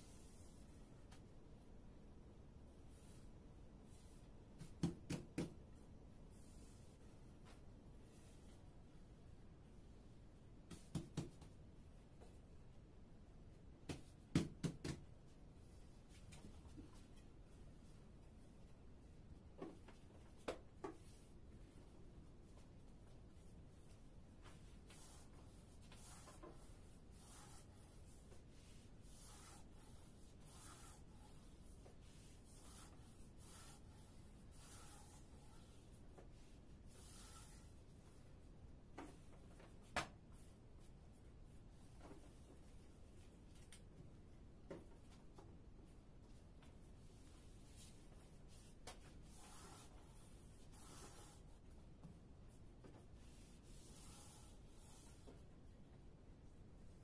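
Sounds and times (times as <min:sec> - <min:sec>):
rolling pin swishing on board: 0:24.4 - 0:37.8.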